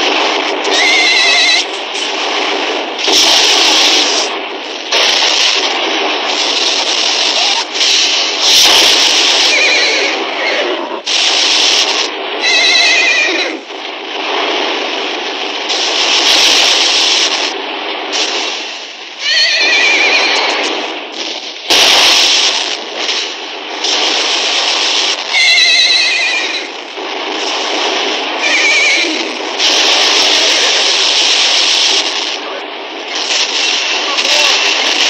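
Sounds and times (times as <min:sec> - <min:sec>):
sharp blast: 0:00.0 - 0:35.0
horses neighing: 0:09.5 - 0:11.0, 0:12.4 - 0:13.6, 0:19.2 - 0:20.7.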